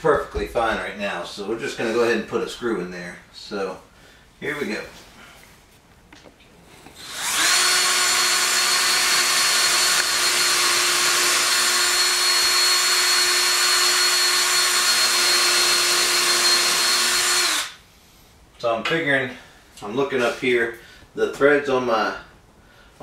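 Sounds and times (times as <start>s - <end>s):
cordless drill boring into wood: 7.0s - 17.8s.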